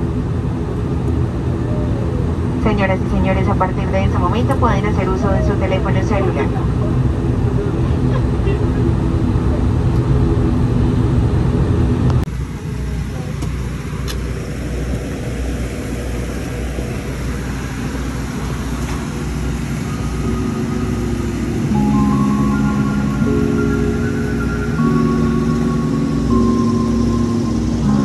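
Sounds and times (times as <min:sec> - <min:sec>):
airplane cabin engine hum: 0:00.0 - 0:28.0
music: 0:20.2 - 0:28.0.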